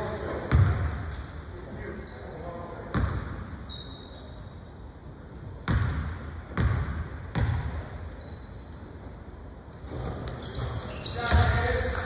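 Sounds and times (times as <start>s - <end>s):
basketball bouncing on gym floor: 0.5s - 1.2s, 2.9s - 3.4s, 5.6s - 7.8s, 9.9s - 12.0s
brief high squeaks: 3.7s - 4.4s, 7.0s - 8.9s, 9.9s - 12.0s.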